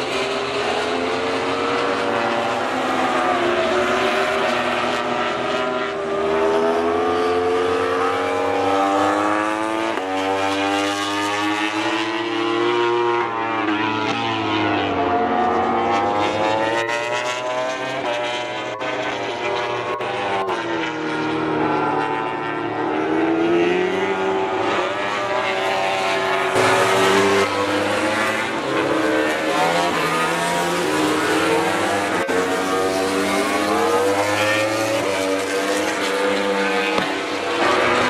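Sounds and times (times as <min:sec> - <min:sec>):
racing motorcycle engines revving: 0:00.0 - 0:38.0.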